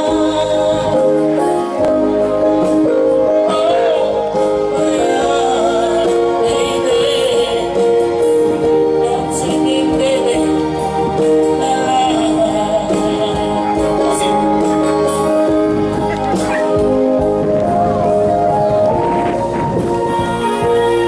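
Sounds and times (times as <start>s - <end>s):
man singing through microphone: 0.0s - 1.8s, 3.2s - 15.5s
electronic keyboard chords: 0.0s - 21.0s.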